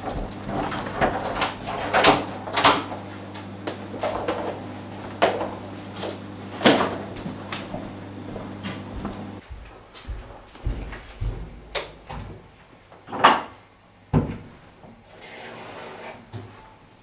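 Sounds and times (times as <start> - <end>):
steady low hum: 0.0 - 11.8
footsteps on floor: 3.0 - 11.7.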